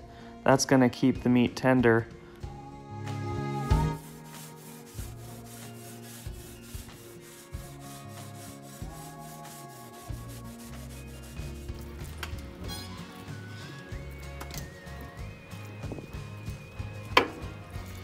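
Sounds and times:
background music: 0.0s - 18.0s
wire brush scraping grill: 4.0s - 13.4s.

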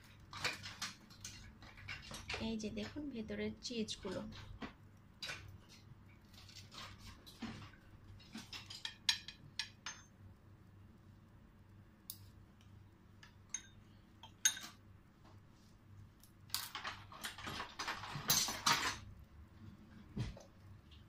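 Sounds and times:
crackly scraping: 5.2s - 8.8s.

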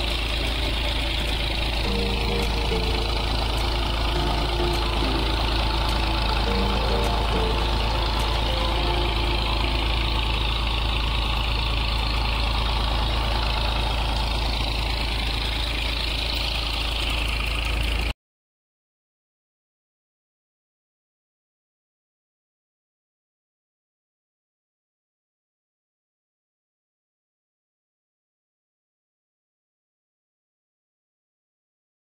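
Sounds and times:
tractor engine running: 0.0s - 18.1s.

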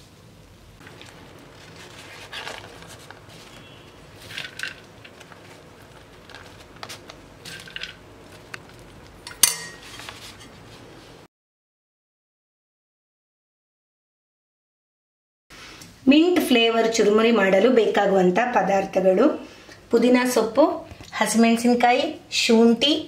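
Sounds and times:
spoon scraping steel bowl: 0.9s - 10.6s
sharp metal clank: 9.3s - 9.9s.

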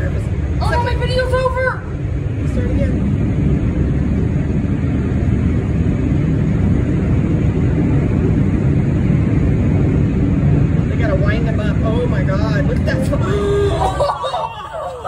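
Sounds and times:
jet engines rumbling: 0.0s - 15.0s.

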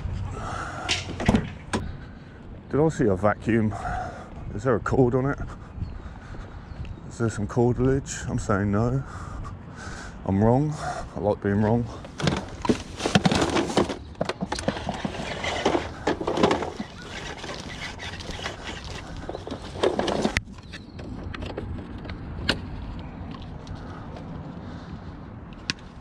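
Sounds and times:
power cord rustling: 12.0s - 22.6s.

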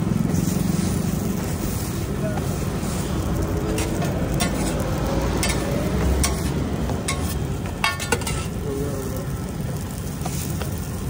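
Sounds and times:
bread sizzling on a griddle: 0.0s - 11.0s
knocks and taps on a griddle: 5.4s - 8.5s, 10.2s - 10.8s.

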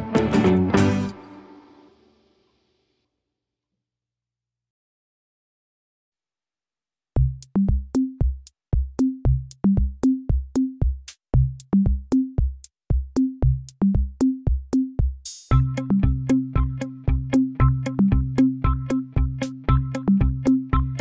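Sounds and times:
electronic music with drum machine: 7.2s - 21.0s.

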